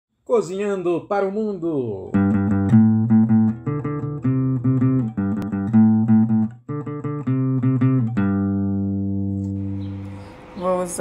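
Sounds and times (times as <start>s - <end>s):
instrumental intro music: 2.1s - 10.6s.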